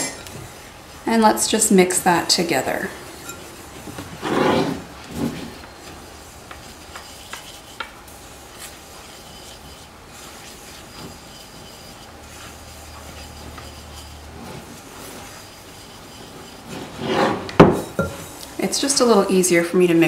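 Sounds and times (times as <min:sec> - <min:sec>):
spatula scraping crumbs in bowl: 0:06.4 - 0:18.3.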